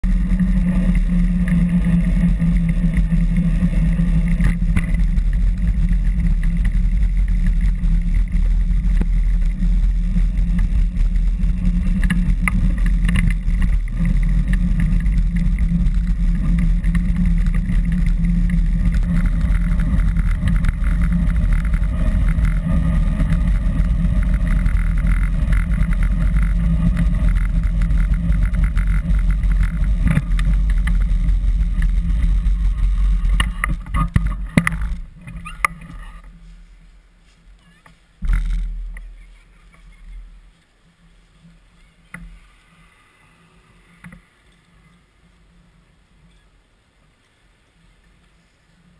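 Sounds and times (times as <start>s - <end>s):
passing traffic: 0.0s - 36.4s
wind and road noise: 0.0s - 48.9s.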